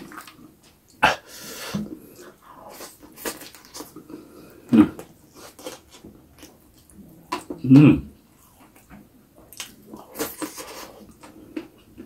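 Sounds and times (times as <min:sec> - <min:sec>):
chewing and lip-smacking: 0:08.4 - 0:12.0.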